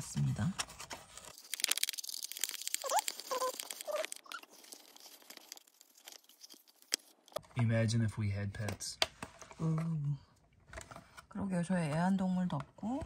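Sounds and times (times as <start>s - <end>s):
fingers scratching plastic brush: 1.3s - 7.3s.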